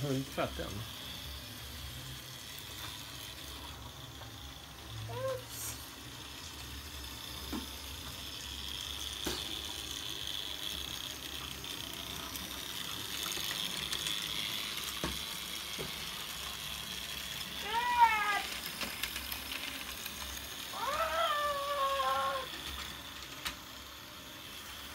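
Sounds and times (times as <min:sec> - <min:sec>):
toy monorail whine: 0:00.0 - 0:24.9.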